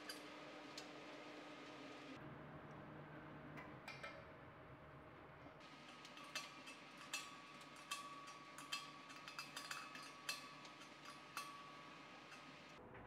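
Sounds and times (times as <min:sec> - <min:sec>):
wrench clinking on brass nut: 0:05.9 - 0:12.6.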